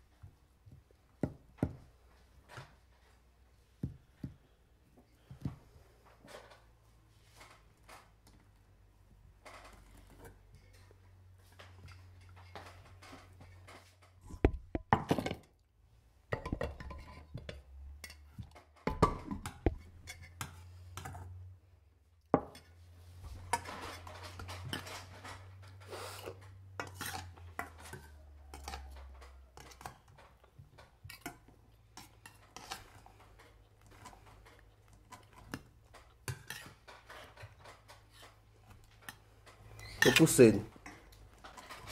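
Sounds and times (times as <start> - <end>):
utensils clinking against bowls: 31.0 - 41.9.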